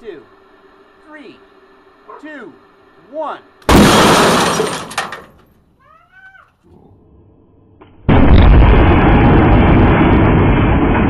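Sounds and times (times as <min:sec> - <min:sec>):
loud boom with breaking glass: 0:03.7 - 0:04.9, 0:08.1 - 0:11.0
picture tube imploding: 0:03.7 - 0:05.4.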